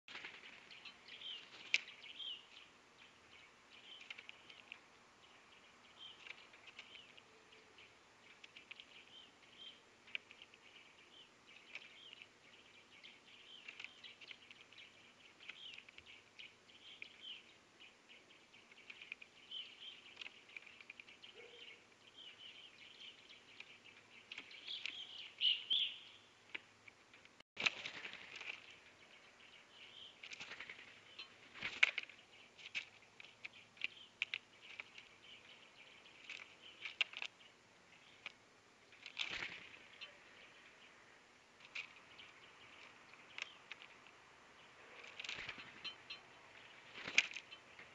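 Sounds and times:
songbirds chirping: 0:00.0 - 0:47.9
bird pecking seed on feeder: 0:03.7 - 0:05.4, 0:06.0 - 0:17.5, 0:41.6 - 0:44.2.

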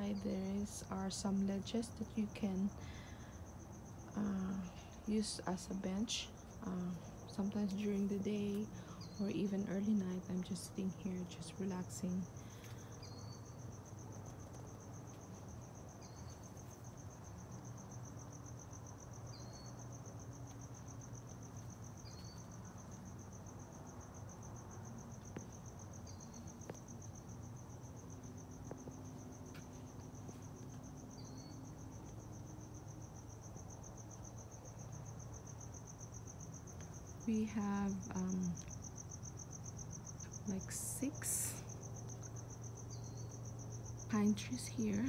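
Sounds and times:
low steady hum: 0:00.0 - 0:22.3, 0:34.5 - 0:45.0
crickets trilling: 0:00.0 - 0:45.0.

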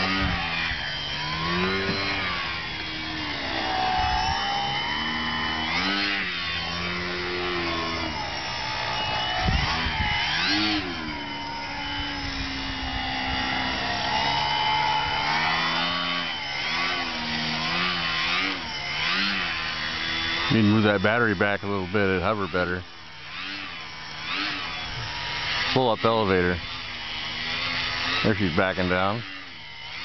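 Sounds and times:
model airplane motor whining: 0:00.0 - 0:30.0.

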